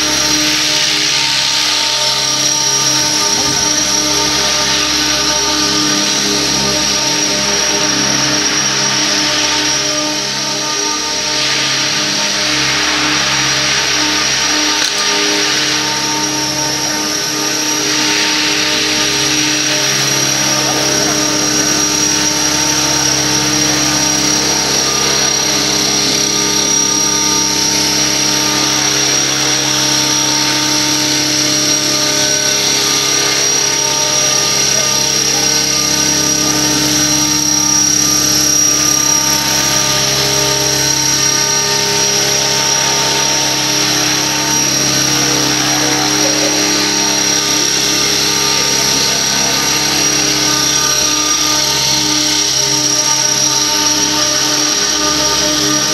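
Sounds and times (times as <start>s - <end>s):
high steady whine: 0.0s - 55.9s
model helicopter rotors whirring: 0.0s - 55.9s.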